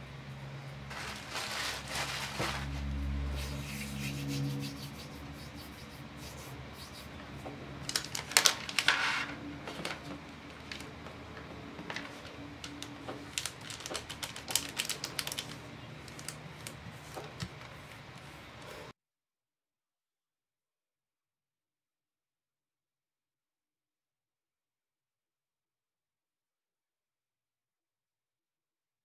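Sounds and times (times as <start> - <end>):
plastic sheet crinkling: 0.8 - 3.1, 7.8 - 11.0, 11.8 - 18.4.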